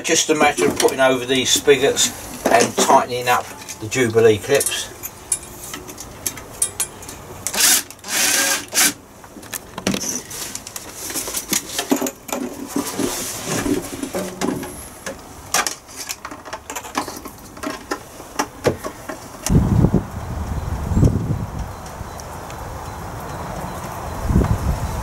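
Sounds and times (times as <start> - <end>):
clicks and knocks of handled metal pipes: 0.2 - 8.0, 9.3 - 19.5
rustling scrape: 10.0 - 15.0, 15.8 - 18.3.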